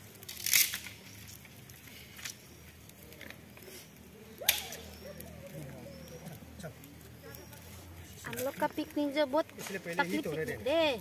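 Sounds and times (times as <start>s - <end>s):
sharp snap: 4.4s - 4.9s.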